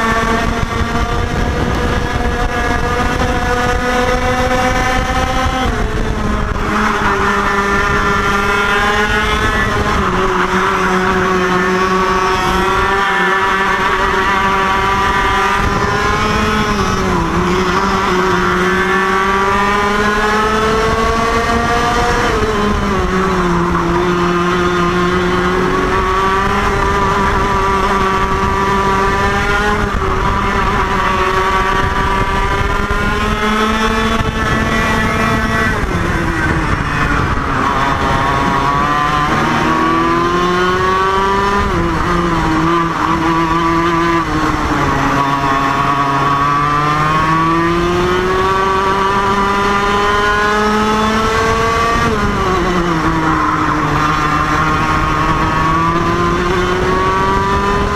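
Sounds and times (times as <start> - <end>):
kart engine racing: 0.0 - 57.9.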